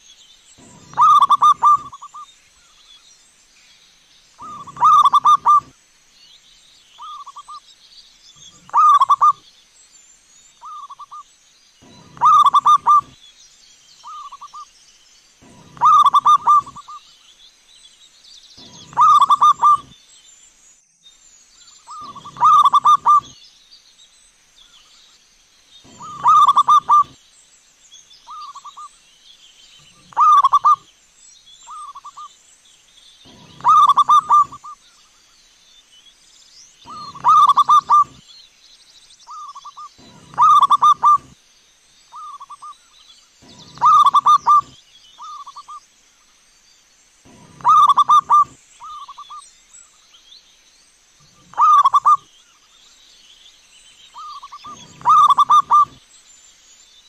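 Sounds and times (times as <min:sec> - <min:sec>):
dove cooing: 0:00.6 - 0:02.2, 0:04.4 - 0:05.7, 0:08.6 - 0:09.4, 0:11.8 - 0:13.2, 0:15.4 - 0:17.0, 0:18.6 - 0:19.9, 0:21.9 - 0:23.4, 0:25.9 - 0:27.2, 0:29.9 - 0:30.8, 0:33.3 - 0:34.7, 0:36.9 - 0:38.2, 0:39.3 - 0:41.4, 0:43.4 - 0:45.6, 0:47.3 - 0:49.2, 0:51.3 - 0:52.2, 0:54.2 - 0:56.0.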